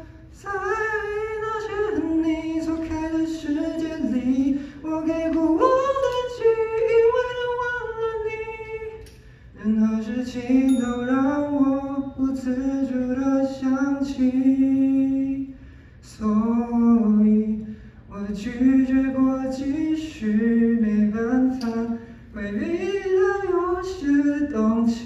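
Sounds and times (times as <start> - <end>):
man singing pop song: 0.0 - 15.5, 16.1 - 25.0.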